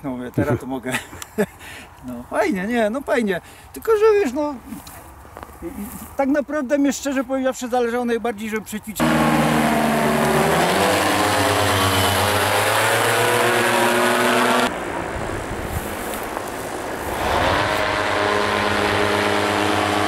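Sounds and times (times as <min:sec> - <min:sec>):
paramotor engine droning: 0:09.0 - 0:15.0, 0:16.9 - 0:20.0.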